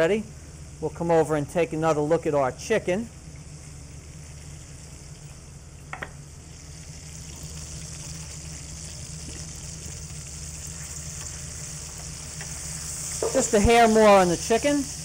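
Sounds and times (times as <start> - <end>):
steady low hum: 0.0 - 15.0
chicken sizzling in oil: 3.4 - 5.6, 6.3 - 15.0.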